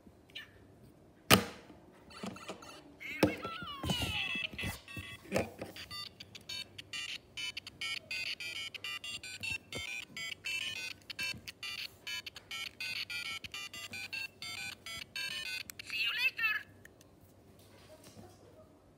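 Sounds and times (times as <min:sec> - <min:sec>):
toy playing beeping melody: 0:02.1 - 0:16.4.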